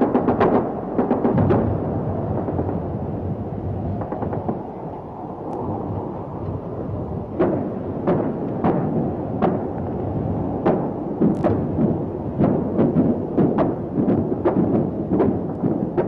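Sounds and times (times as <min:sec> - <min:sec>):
bursts of gunfire: 0:00.0 - 0:02.8, 0:10.6 - 0:16.0
heavy explosion booms: 0:00.0 - 0:04.6
continuous rumble: 0:00.0 - 0:16.0.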